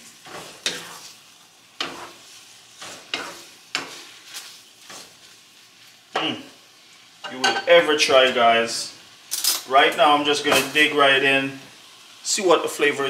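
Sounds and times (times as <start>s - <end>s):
wooden spoon scraping a pan: 0.0s - 6.5s
light sizzle: 0.0s - 13.0s.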